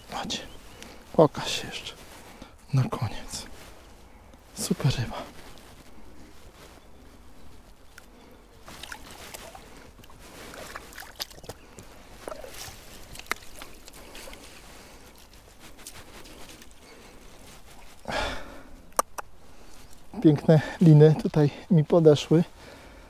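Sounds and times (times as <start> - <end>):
water splashing and sloshing: 8.6 - 18.0.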